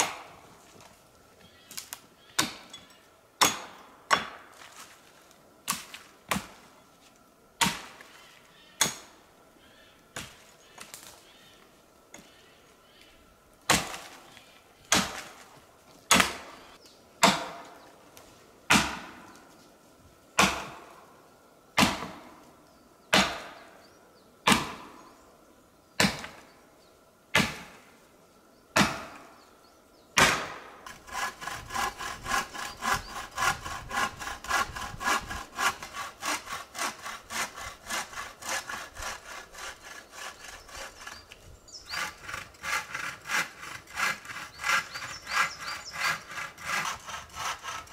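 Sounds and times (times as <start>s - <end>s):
axe chopping log: 3.4s - 4.5s, 13.7s - 14.2s, 14.9s - 15.4s, 16.1s - 16.5s, 17.2s - 17.7s, 18.7s - 19.2s, 20.4s - 20.8s, 21.8s - 22.3s, 23.1s - 23.6s, 24.5s - 25.0s, 26.0s - 26.4s, 27.4s - 27.8s, 28.8s - 29.3s, 30.2s - 31.3s
hand saw cutting wood: 30.2s - 47.9s.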